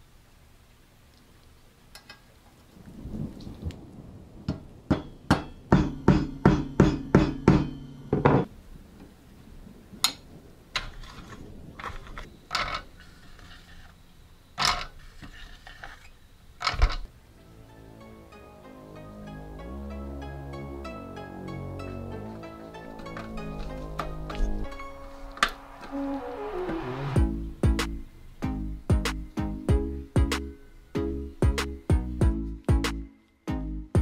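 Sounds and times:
metal parts knocking and clicking: 10.8s - 13.6s, 14.6s - 16.0s, 16.6s - 17.1s.

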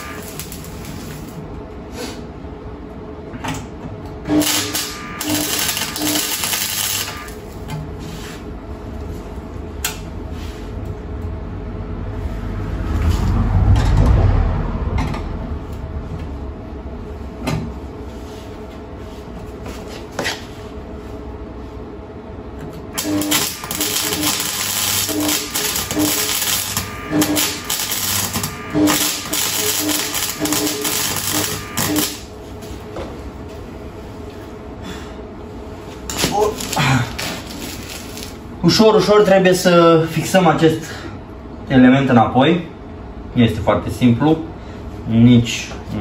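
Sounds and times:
arc welder crackling: 0.0s - 1.6s, 4.1s - 8.3s, 22.8s - 32.5s, 36.0s - 38.7s
low rumble: 8.7s - 18.1s.

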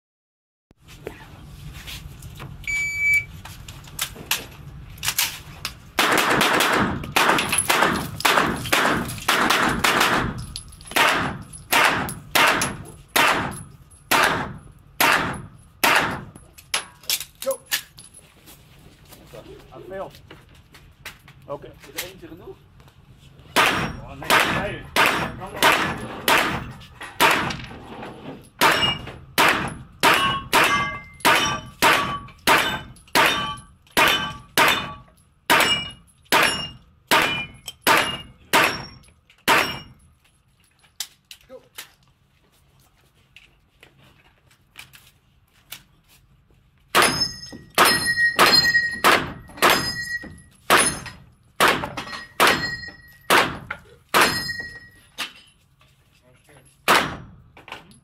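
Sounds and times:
gunshots: 6.0s - 10.4s, 11.0s - 16.3s, 23.6s - 27.6s, 28.6s - 38.9s, 56.9s - 57.3s
metallic ring of steel target: 23.6s - 27.6s, 28.4s - 40.1s, 46.9s - 55.6s.

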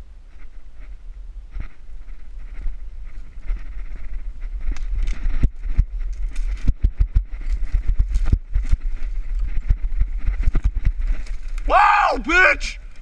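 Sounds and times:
steady low rumble: 0.0s - 11.8s
dry sticks snapping: 10.6s - 11.8s.

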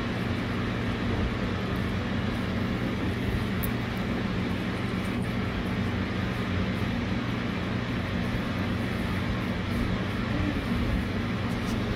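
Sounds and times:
constant low hum: 0.0s - 11.9s.

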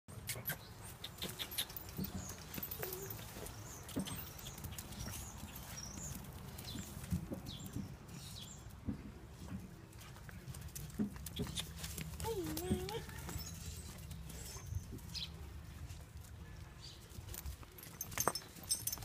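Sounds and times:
dog chain clinking: 1.4s - 6.9s, 17.2s - 19.0s
dogs moving on straw: 9.3s - 16.4s.

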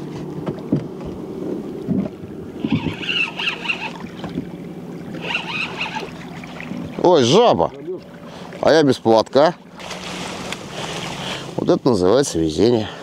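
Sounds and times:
boat motor humming: 0.0s - 13.0s
spinning reel cranking: 2.7s - 3.9s, 5.2s - 6.1s.

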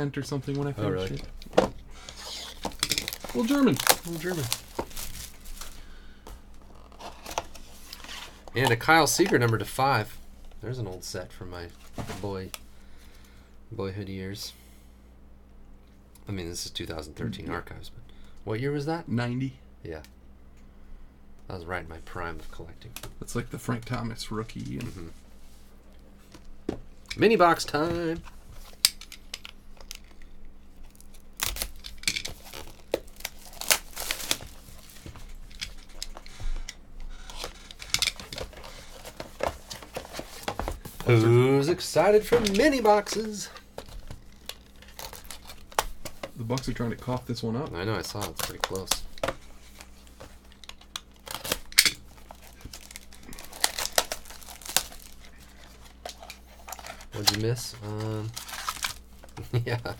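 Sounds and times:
plastic wrap crinkling and tearing: 2.1s - 5.9s, 30.9s - 36.5s, 37.1s - 47.2s, 48.0s - 59.7s.

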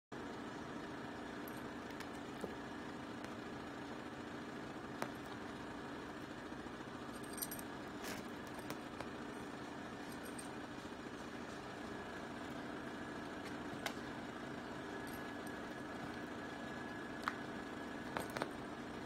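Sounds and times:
steady mechanical hum: 0.1s - 19.0s
light metallic jingle: 7.1s - 8.7s, 10.0s - 10.6s.

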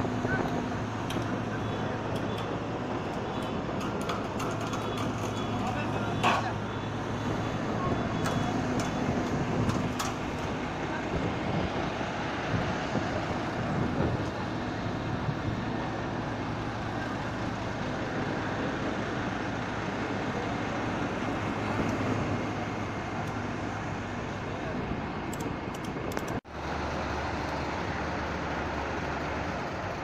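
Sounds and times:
diesel engine idling: 0.0s - 30.0s
machinery noise: 0.0s - 30.0s.

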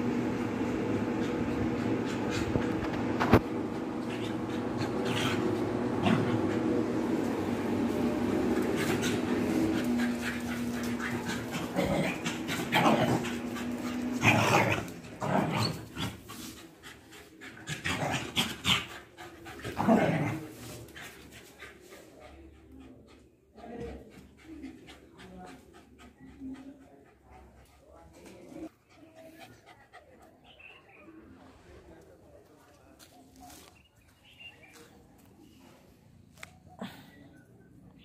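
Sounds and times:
dogs snarling and yapping: 0.2s - 30.5s
dogs growling: 0.8s - 21.9s.

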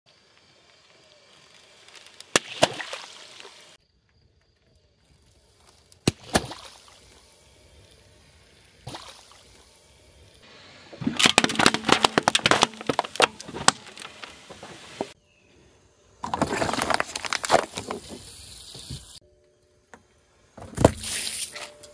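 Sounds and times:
splash of liquid: 2.3s - 3.6s, 6.1s - 7.0s, 8.8s - 9.4s
cans crushed by car tyre: 11.0s - 15.1s, 16.2s - 18.1s.

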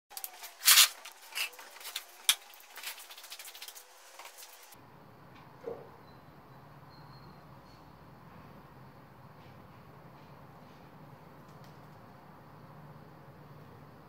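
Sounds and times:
plastic sheet crinkling: 0.1s - 4.8s.

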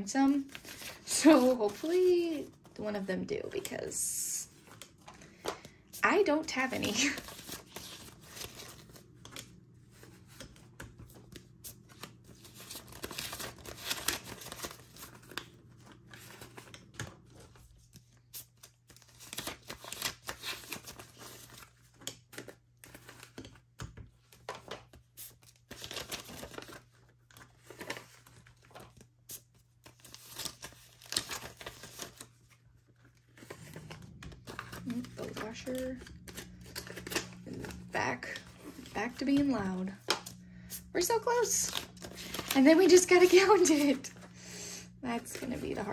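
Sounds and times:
paper banknotes rustling: 0.2s - 23.6s, 24.3s - 44.5s, 45.1s - 45.9s.

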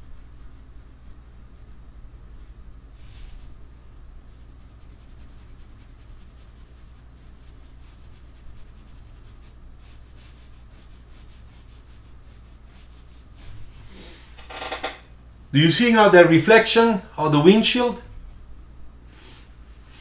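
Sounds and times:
pencil scratching on paper: 3.2s - 13.6s.

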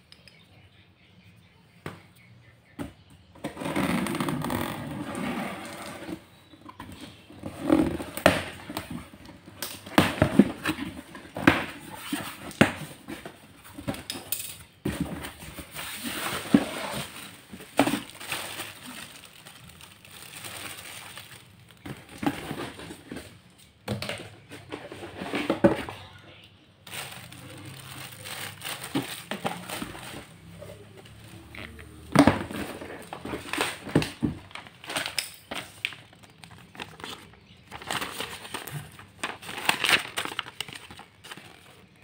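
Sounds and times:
plastic wrapping crinkling: 15.2s - 23.5s, 26.8s - 42.0s.

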